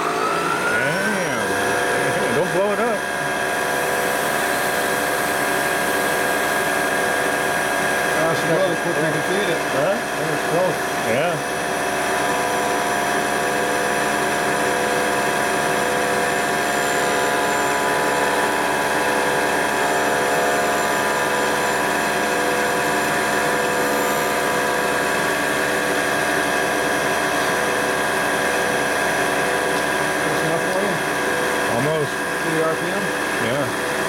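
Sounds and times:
milling machine cutting metal: 0.0s - 34.0s.

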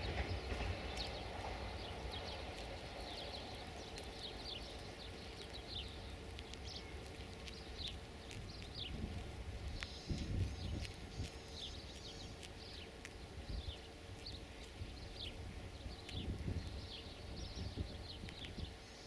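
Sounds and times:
train rumbling: 0.0s - 5.2s
birds chirping: 0.0s - 19.0s.

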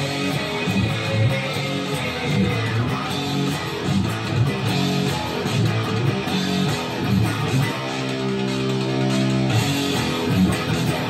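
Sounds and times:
electric guitar riff: 0.0s - 11.0s.

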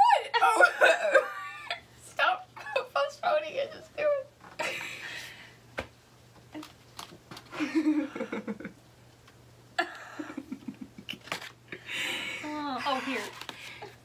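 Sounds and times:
women laughing and giggling: 0.0s - 1.8s, 7.5s - 8.8s, 9.8s - 11.2s, 11.9s - 13.3s.

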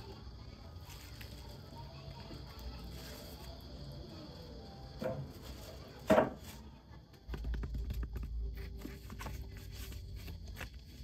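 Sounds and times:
paper rustling: 0.8s - 3.5s, 7.3s - 11.0s.

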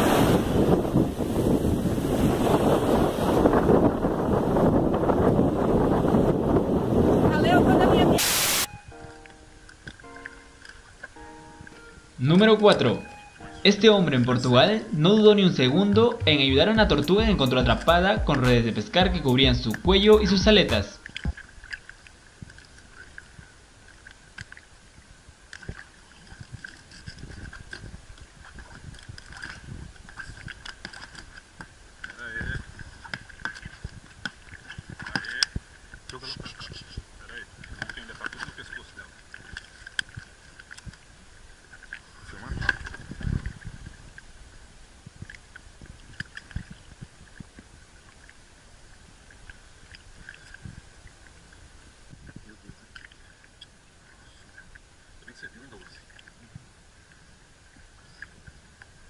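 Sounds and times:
faint high tone: 8.6s - 14.6s
water lapping against boat hull: 21.0s - 59.0s.

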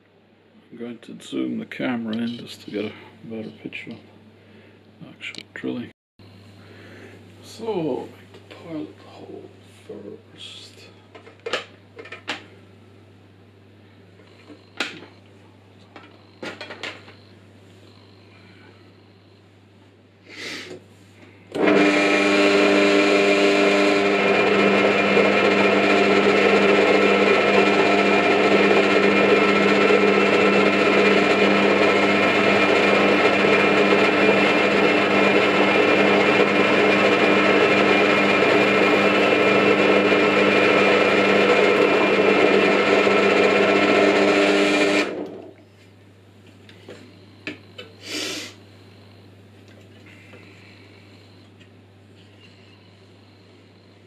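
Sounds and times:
drill press drilling metal: 21.5s - 45.5s.

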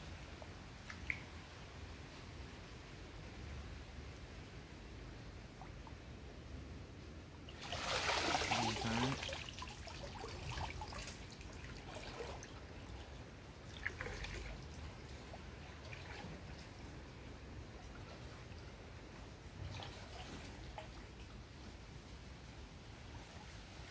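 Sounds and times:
water sloshing and splashing: 7.4s - 23.9s.

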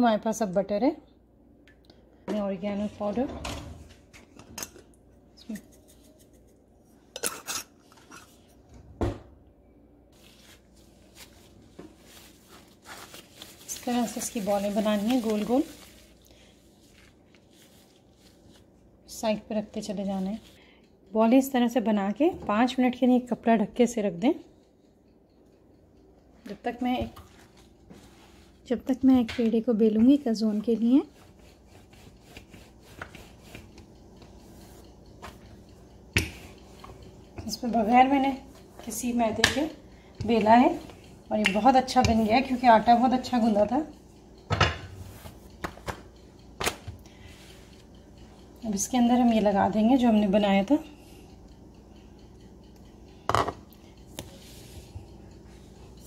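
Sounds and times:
plastic gloves rustling: 10.1s - 20.6s
rolling pin rubbing on dough: 10.2s - 20.6s, 27.3s - 29.2s, 29.8s - 43.9s, 44.9s - 45.9s.

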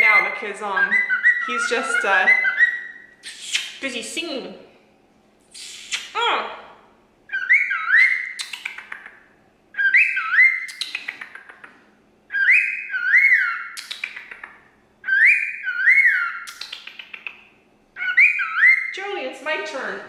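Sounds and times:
cockatiel whistling: 0.0s - 3.8s, 7.3s - 9.0s, 9.7s - 11.5s, 12.3s - 17.4s, 18.0s - 18.9s
cockatiel clicks: 8.4s - 9.2s, 10.7s - 11.8s, 13.8s - 14.6s, 16.5s - 17.4s.

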